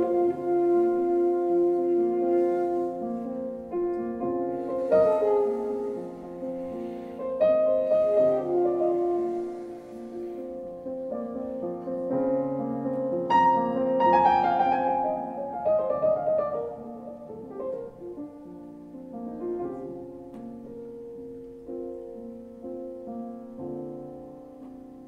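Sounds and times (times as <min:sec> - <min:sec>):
saxophone playing slow jazz: 0:00.0 - 0:11.2
piano chords and runs: 0:00.0 - 0:25.0.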